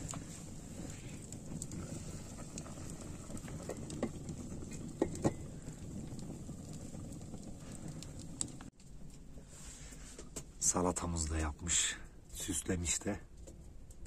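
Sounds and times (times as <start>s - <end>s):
low rush of flame: 0.0s - 14.0s
wood fire crackling: 0.0s - 14.0s.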